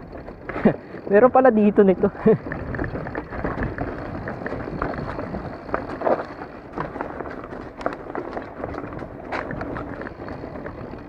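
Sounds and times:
tyres rumbling on dirt: 0.0s - 11.0s
bike frame knocks and clicks: 2.4s - 11.0s.

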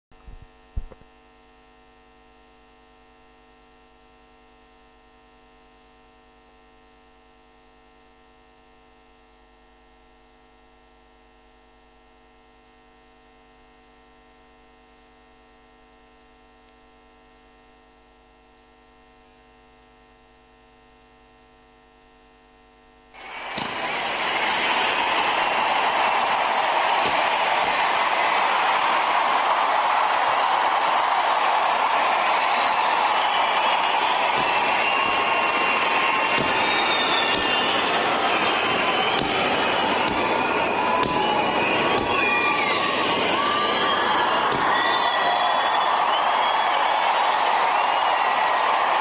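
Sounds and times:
electrical mains hum: 0.1s - 49.0s
crowd noise: 23.1s - 49.0s.

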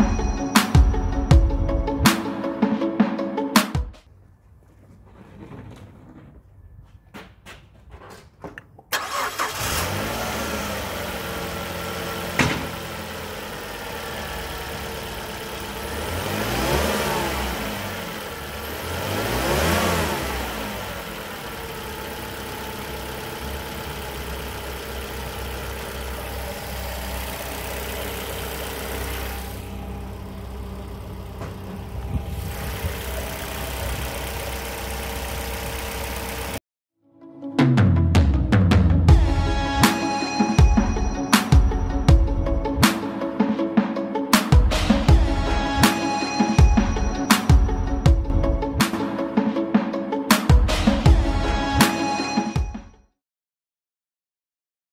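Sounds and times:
car engine starting and idling: 4.0s - 36.6s, 39.1s - 43.2s, 44.6s - 49.2s
car engine revving: 9.0s - 36.6s.

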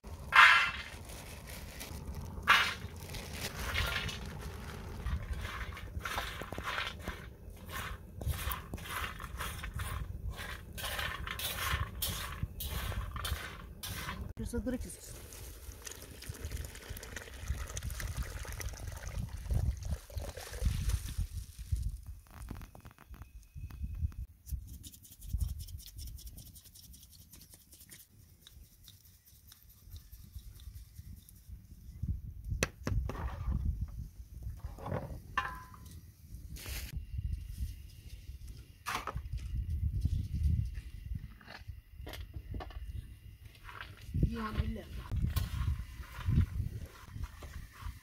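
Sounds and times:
wind rumble on microphone: 3.0s - 14.4s, 16.3s - 24.3s, 30.7s - 35.4s, 36.3s - 48.0s
whisk scraping on metal griddle: 6.0s - 14.3s.

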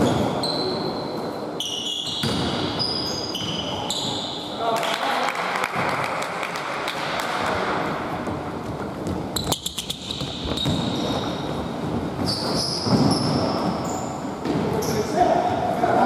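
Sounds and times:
sneaker squeaks: 0.0s - 4.6s, 9.0s - 15.2s
basketball bouncing on hardwood: 10.1s - 11.1s.

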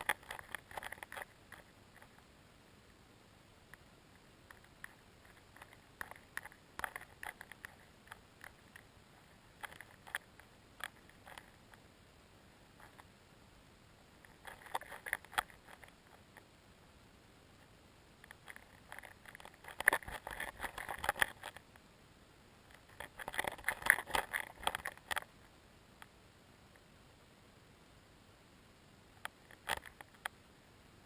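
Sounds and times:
underwater crackling and clicking: 0.0s - 2.3s, 3.7s - 11.8s, 14.2s - 16.4s, 18.2s - 21.8s, 22.7s - 25.3s, 29.2s - 30.4s.

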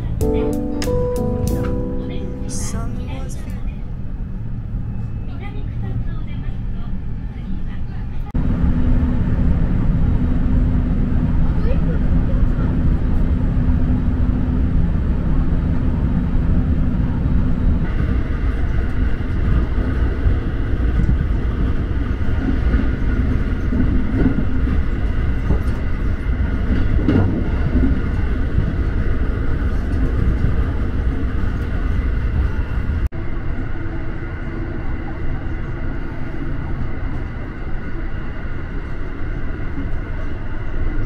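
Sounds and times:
steady high tones: 0.0s - 4.0s
train carriage hum: 0.0s - 41.0s
train wheels rumbling on rail: 3.5s - 41.0s.

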